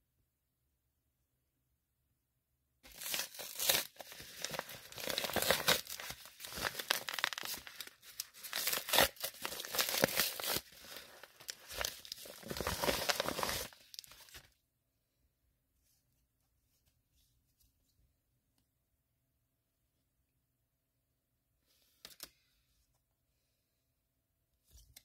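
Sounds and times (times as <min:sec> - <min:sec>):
padded envelope ripping and crinkling: 0:02.9 - 0:14.5.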